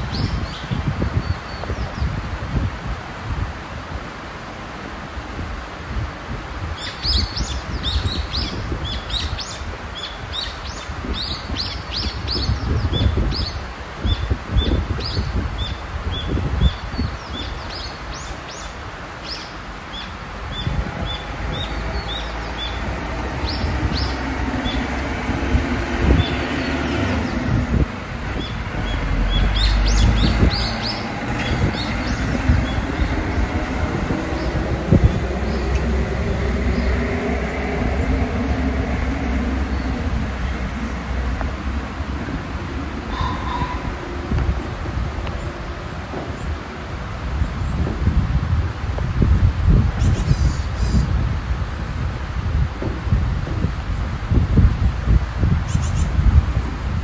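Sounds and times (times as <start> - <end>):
low rumbling noise: 0.0 - 57.0
small birds chirping: 6.7 - 25.0, 28.3 - 37.5
truck engine running: 20.8 - 43.1.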